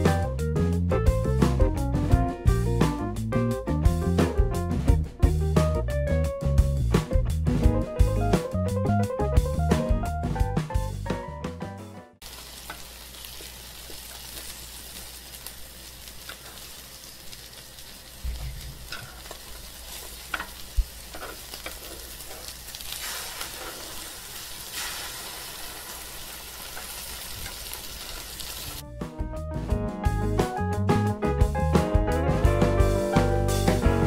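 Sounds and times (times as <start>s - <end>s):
fish sizzling in oil: 12.2s - 28.8s.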